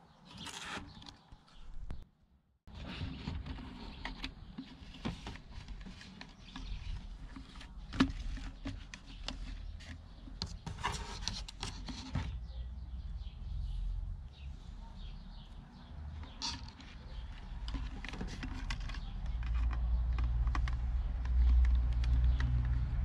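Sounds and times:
plastic rubbing and rustling: 2.7 - 12.5, 16.2 - 22.7
plastic clicks: 16.5 - 22.9.

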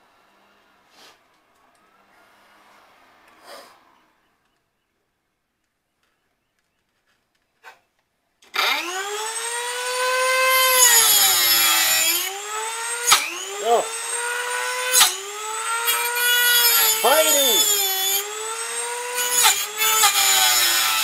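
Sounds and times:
rotary tool grinding steel: 8.5 - 21.0.

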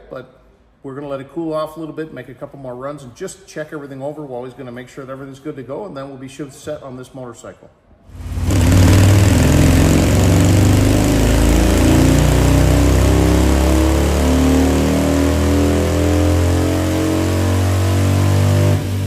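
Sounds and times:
dyno roller: 8.1 - 19.0
motorcycle engine revving: 8.1 - 19.0.

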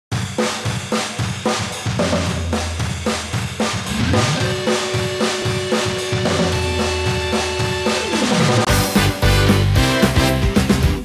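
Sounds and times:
drum kit beat: 0.1 - 11.0
bass line: 2.0 - 11.0
held notes: 3.9 - 9.8.

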